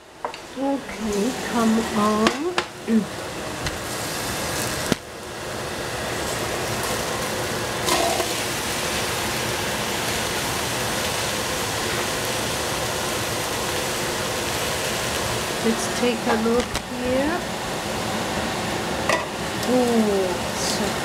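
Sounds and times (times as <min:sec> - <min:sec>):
squash sizzling in a pot: 0:00.2 - 0:21.0
pieces clattering into pot: 0:07.8 - 0:08.4.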